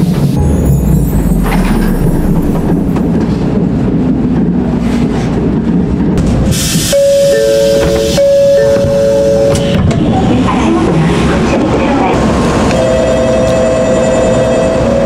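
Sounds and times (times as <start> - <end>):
train rumbling: 0.0 - 15.0
two-tone door chime: 7.0 - 9.8.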